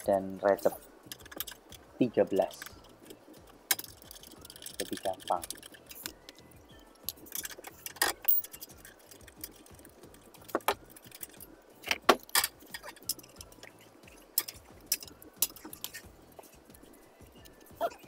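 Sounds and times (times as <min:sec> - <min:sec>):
metal hand tools clinking: 0:02.4 - 0:06.1, 0:07.0 - 0:09.8, 0:12.2 - 0:13.8, 0:14.4 - 0:16.1.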